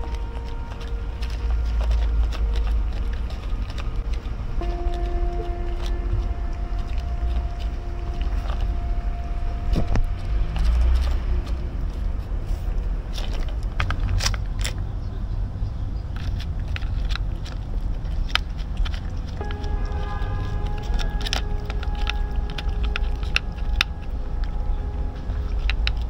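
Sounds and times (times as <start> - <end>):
low rumble of street background: 0.0 - 26.0
sharp clicks and taps: 16.2 - 26.0.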